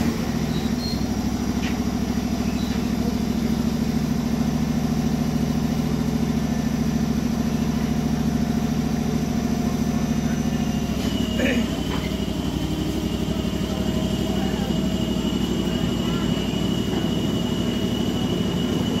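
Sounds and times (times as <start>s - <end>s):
small engine idling: 0.0s - 19.0s.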